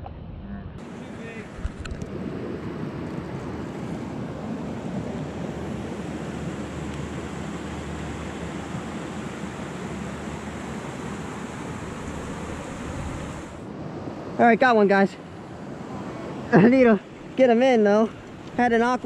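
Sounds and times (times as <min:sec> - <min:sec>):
creek water flowing over riffles: 0:03.6 - 0:13.7.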